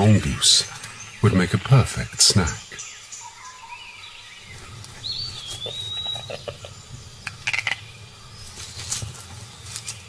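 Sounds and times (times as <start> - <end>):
bird whistling: 2.5 - 8.0
rustling in dry leaf litter: 8.3 - 10.0.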